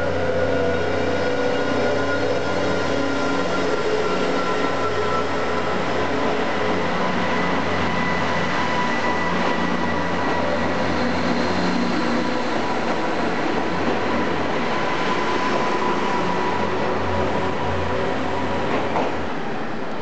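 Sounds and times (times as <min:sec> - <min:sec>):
train moving at low speed: 0:00.0 - 0:20.0.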